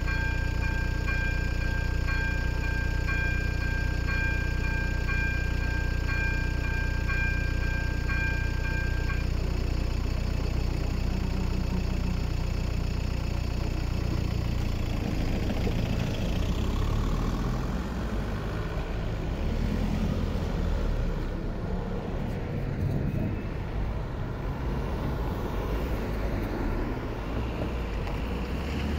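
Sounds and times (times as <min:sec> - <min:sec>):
crossing bell ringing: 0:00.0 - 0:12.6
van engine idling: 0:00.0 - 0:28.9
van pulling away: 0:00.0 - 0:28.9
cars driving past: 0:14.0 - 0:28.9.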